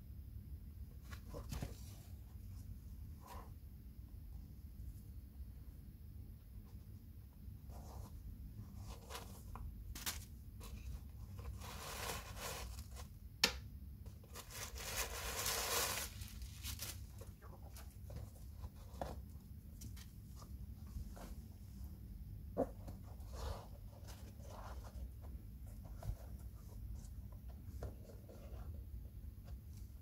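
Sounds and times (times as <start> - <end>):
low steady hum: 0.0 - 30.0
shoe and tissue rustling: 7.9 - 13.1, 14.2 - 21.9.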